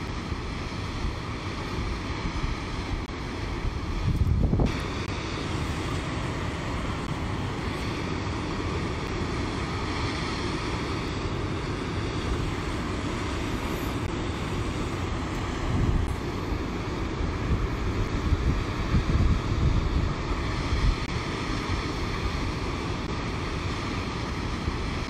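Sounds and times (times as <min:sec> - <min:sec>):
wind buffeting microphone: 0:00.0 - 0:25.0
whitewater cascade rushing: 0:04.6 - 0:19.4.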